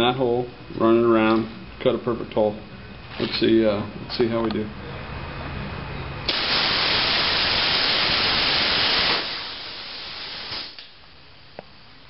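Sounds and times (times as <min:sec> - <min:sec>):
plasma cutter hissing: 0:06.3 - 0:11.0.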